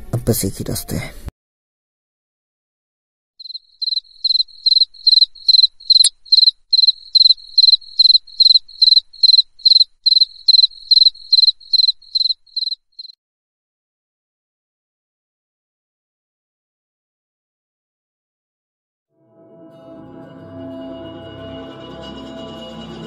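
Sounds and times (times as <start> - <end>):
cricket chirping: 3.4 - 13.2.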